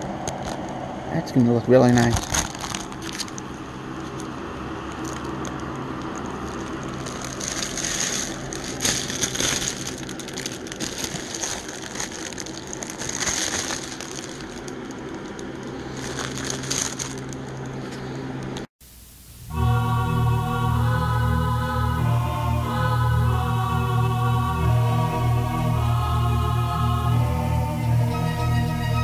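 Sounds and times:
low steady hum: 0.0s - 29.0s
plastic film crinkling: 2.1s - 3.5s, 4.9s - 18.2s.

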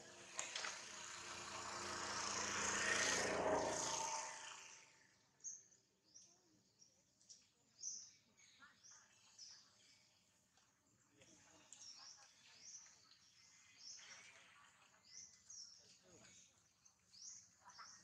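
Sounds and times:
broad rushing noise: 0.0s - 5.0s
small birds chirping: 11.2s - 18.0s.

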